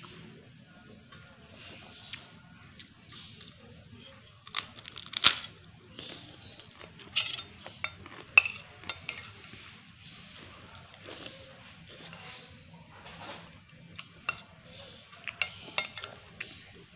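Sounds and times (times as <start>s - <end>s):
metal spoon clinking on glass bowl: 7.1s - 9.5s, 14.2s - 14.6s, 15.3s - 16.4s.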